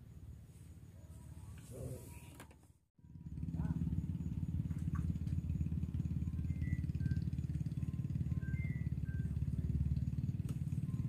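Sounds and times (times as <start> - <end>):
small engine chugging: 3.0 - 11.0
faint high chirps: 3.6 - 11.0.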